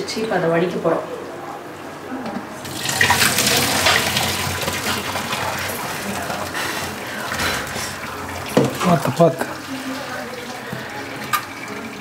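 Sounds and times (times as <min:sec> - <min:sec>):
water gushing into a sink strainer: 0:02.6 - 0:12.0.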